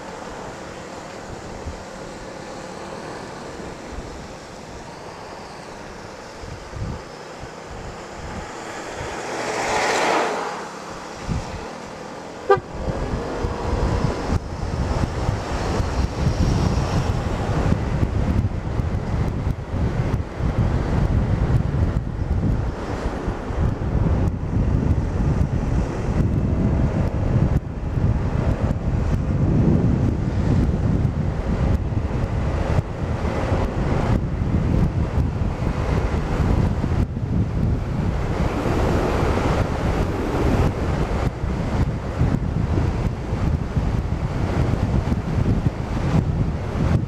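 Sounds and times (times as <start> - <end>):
road noise: 0.0 - 47.0
scooter engine and tyre noise: 0.0 - 47.0
wind rushing over microphone: 0.0 - 47.0
short horn toot: 12.4 - 12.8.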